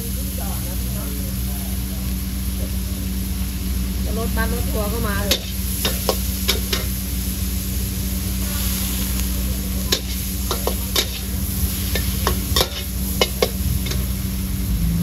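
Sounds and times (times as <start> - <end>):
food sizzling in a wok: 0.0 - 15.0
low hum: 0.0 - 15.0
metal spatula striking pan: 5.3 - 6.9, 9.9 - 11.3, 11.9 - 14.1.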